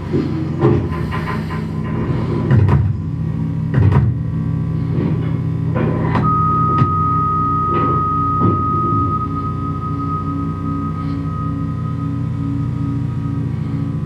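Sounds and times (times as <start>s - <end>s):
low droning hum: 0.0s - 14.0s
high pure tone: 6.2s - 14.0s.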